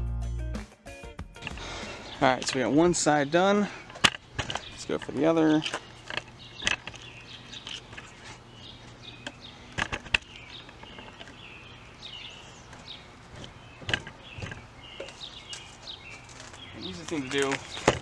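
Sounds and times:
sharp clicks and knocks: 1.4 - 3.1, 3.8 - 8.2, 9.2 - 11.4, 12.6 - 15.7, 17.1 - 18.0
birds chirping: 1.4 - 18.0.

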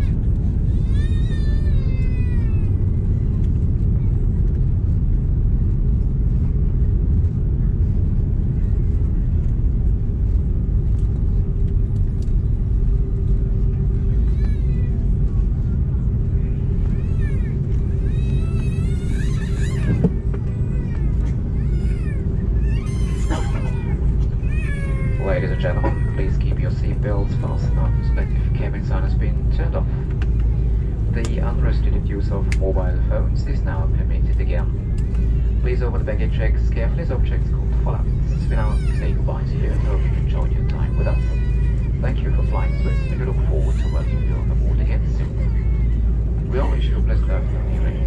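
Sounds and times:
airplane cabin rumble: 0.0 - 48.0.

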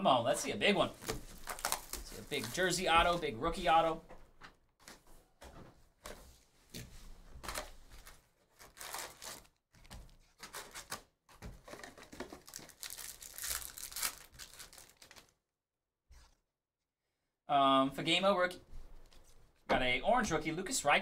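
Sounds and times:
card packs tearing and crinkling: 0.9 - 3.2, 7.4 - 15.3.

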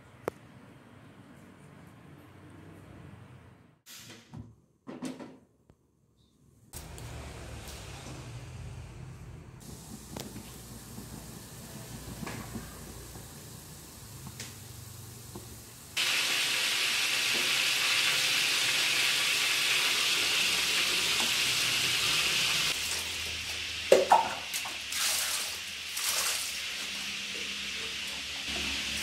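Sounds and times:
pot boiling with loud hiss: 9.6 - 29.0.

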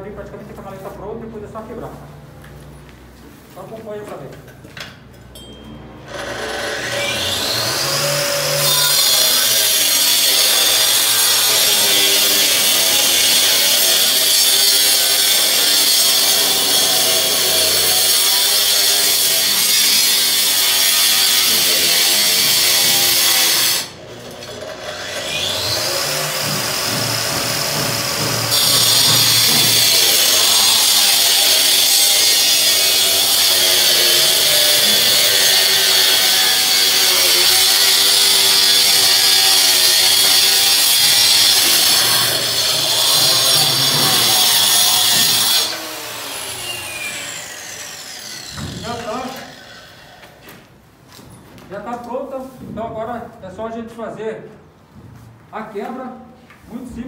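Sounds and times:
wall chaser motor cutting brick: 6.1 - 50.4.

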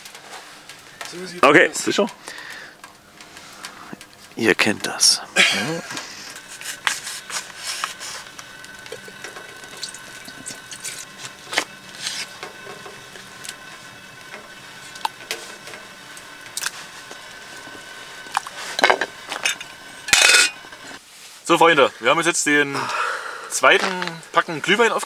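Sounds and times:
metal kettle clanking: 5.4 - 21.0
small knocks and scrapes: 6.0 - 9.6.

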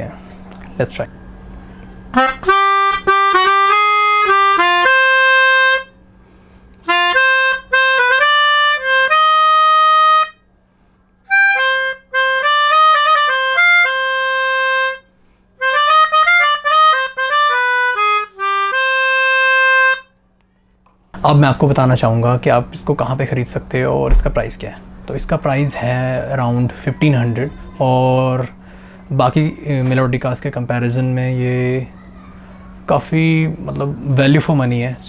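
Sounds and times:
melodica melody: 2.1 - 6.0, 6.8 - 10.4, 11.3 - 20.1.

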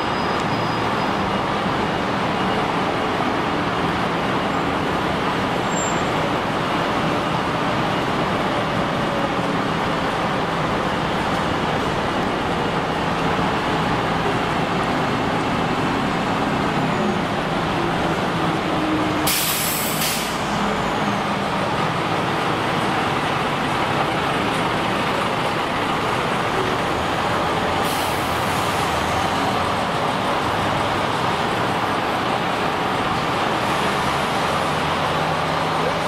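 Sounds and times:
heavy vehicle engine running: 0.0 - 36.0
air brake hissing: 19.2 - 20.6, 27.8 - 28.8.

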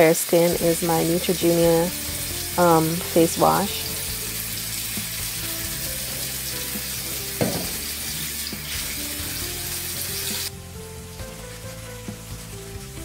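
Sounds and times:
tap running into a sink: 7.0 - 7.9.

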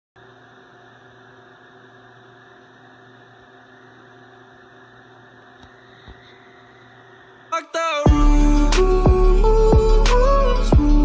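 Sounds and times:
low electrical hum: 0.2 - 11.0.

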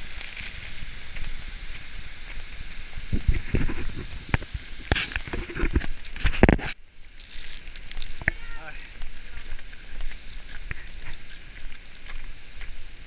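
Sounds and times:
wind buffeting microphone: 0.0 - 6.6.

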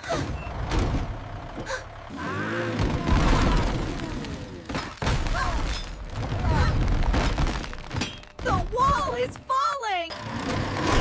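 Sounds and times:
truck engine rumbling: 0.0 - 11.0
brick wall collapsing: 2.7 - 9.3.

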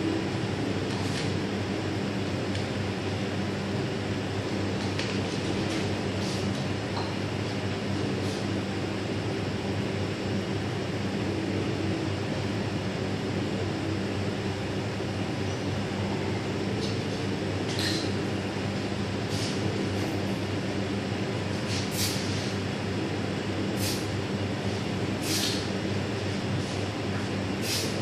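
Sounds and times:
kitchen equipment hum: 14.6 - 28.0
short hisses: 25.2 - 25.7.

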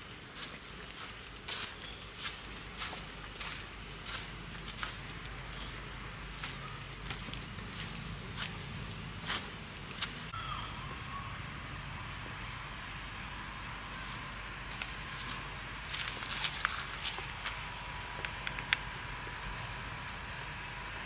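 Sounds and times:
insects droning: 0.0 - 21.0
faint footsteps on dirt path: 0.3 - 10.3.

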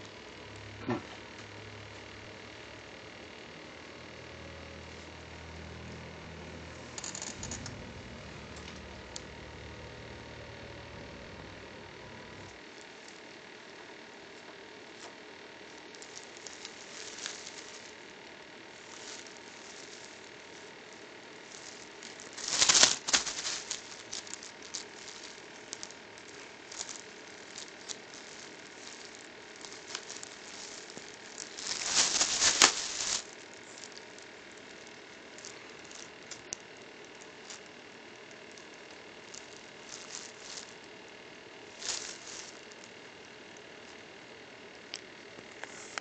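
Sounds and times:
plastic wrap crinkling: 6.9 - 9.3, 12.6 - 44.0.

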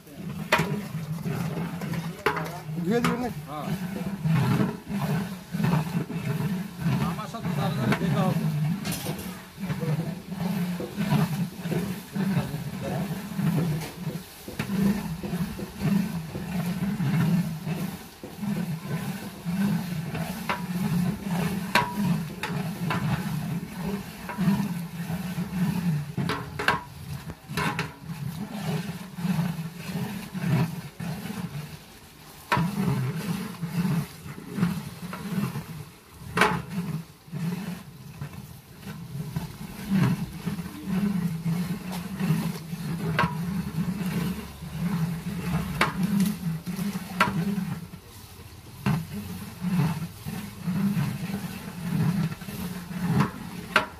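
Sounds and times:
ladle scraping and knocking pot: 0.0 - 53.9.

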